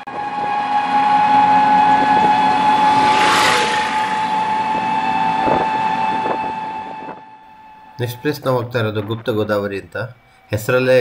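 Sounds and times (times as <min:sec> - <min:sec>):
road and wind noise: 0:00.0 - 0:07.7
drivetrain whine: 0:00.0 - 0:11.0.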